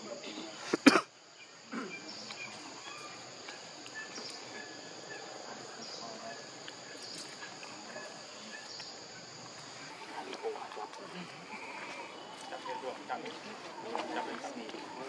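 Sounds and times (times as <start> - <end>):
background hiss: 0.0 - 15.0
high-pitched insect chorus: 0.0 - 15.0.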